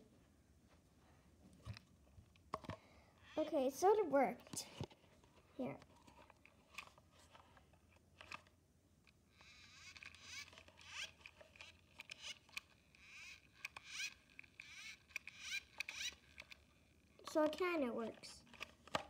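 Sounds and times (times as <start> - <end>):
plastic toy scraping paper cup: 9.4 - 16.6.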